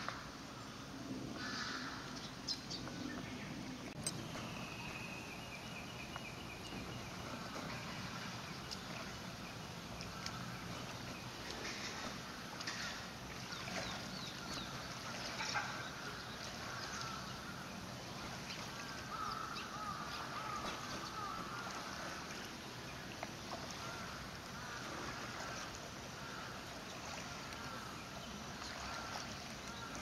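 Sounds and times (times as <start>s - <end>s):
animal wading through water: 0.0s - 30.0s
water dripping: 6.0s - 30.0s.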